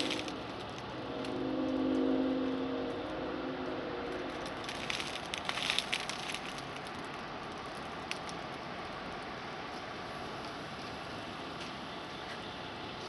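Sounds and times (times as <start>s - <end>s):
crackling and rustling: 0.0s - 2.1s, 4.1s - 13.0s
traffic and engine noise: 0.0s - 13.0s
vehicle horn: 1.0s - 4.4s.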